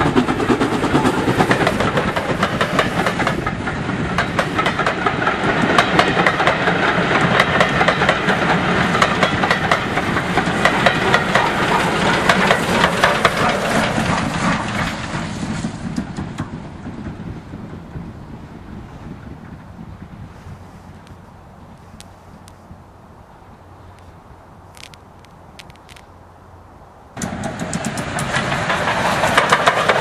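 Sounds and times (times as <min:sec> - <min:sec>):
train wheels clattering on rails: 0:00.0 - 0:20.2, 0:27.2 - 0:30.0
steam locomotive exhaust and hiss: 0:00.0 - 0:22.8, 0:27.2 - 0:30.0.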